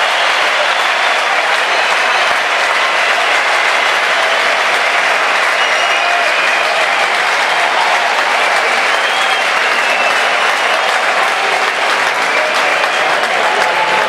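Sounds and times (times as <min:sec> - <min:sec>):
audience applauding: 0:00.0 - 0:14.0
high whistles: 0:05.4 - 0:07.1, 0:08.6 - 0:10.9.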